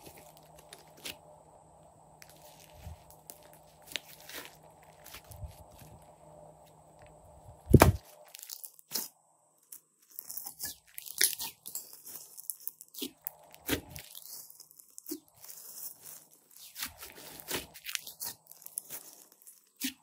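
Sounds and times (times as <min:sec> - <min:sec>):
slime slapped down with thud: 0:07.7 - 0:08.0.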